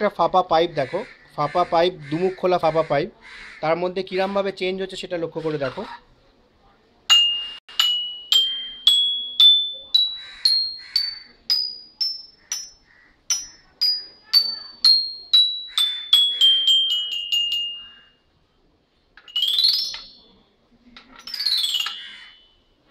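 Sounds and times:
toy xylophone notes: 0:07.1 - 0:18.3, 0:19.2 - 0:20.4, 0:21.1 - 0:22.8
xylophone glissandos: 0:07.1 - 0:18.4, 0:19.2 - 0:20.4, 0:21.1 - 0:22.8.

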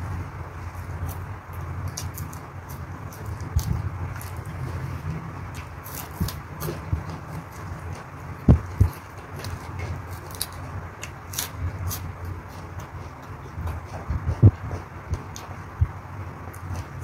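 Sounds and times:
chewing crisp vegetables: 0:00.5 - 0:17.0
dull thumps: 0:06.1 - 0:10.0.

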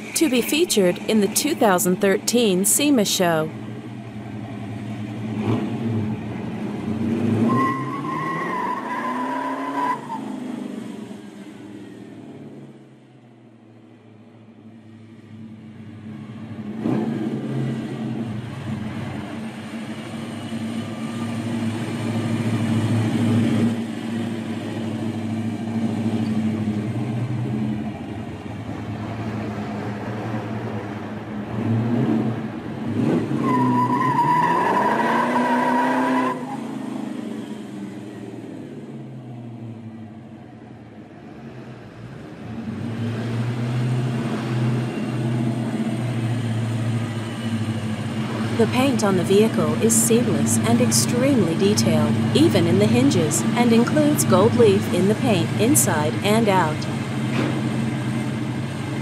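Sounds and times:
car engine revving: 0:04.2 - 0:11.2.

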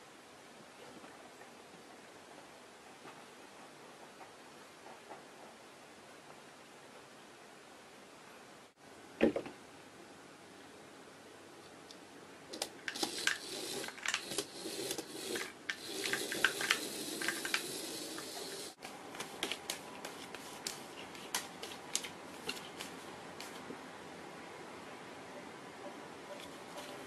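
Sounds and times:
toy clattering on wooden floor: 0:12.9 - 0:18.3
toy electric motor whirring: 0:12.9 - 0:18.8.

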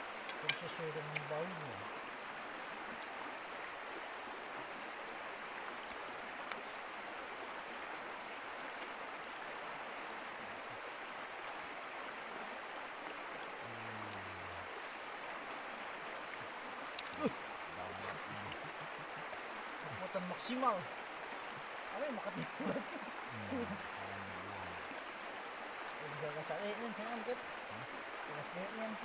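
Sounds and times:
stream rushing over rocks: 0:00.0 - 0:29.0
faint clicks: 0:00.2 - 0:01.3.

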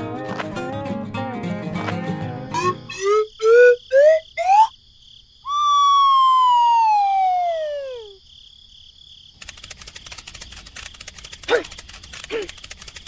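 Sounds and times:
cartoon whistle: 0:02.5 - 0:04.7, 0:05.5 - 0:08.2
faint rapid rattling: 0:09.4 - 0:13.0.

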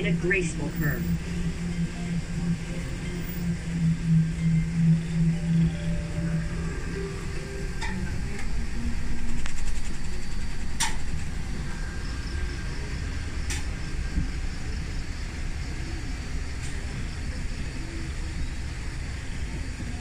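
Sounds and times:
tram rumbling: 0:00.0 - 0:20.0.

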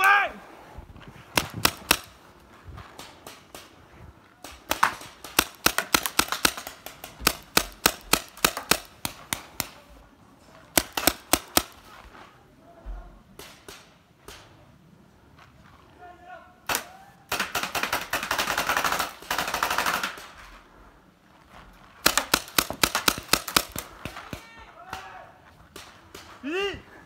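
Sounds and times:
paintball markers firing: 0:01.3 - 0:02.2, 0:04.4 - 0:09.9, 0:10.7 - 0:11.9, 0:22.0 - 0:25.1.

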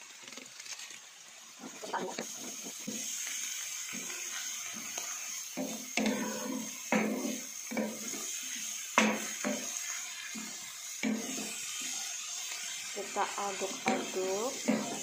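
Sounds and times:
frying sizzle: 0:00.0 - 0:15.0
utensil scraping frying pan: 0:01.6 - 0:15.0
utensil knocking pan: 0:05.5 - 0:08.2, 0:09.0 - 0:11.5, 0:13.7 - 0:15.0.

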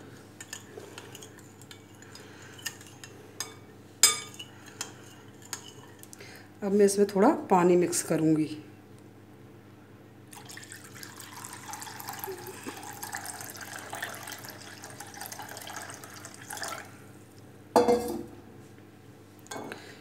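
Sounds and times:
water pouring into a bowl: 0:10.3 - 0:17.0.

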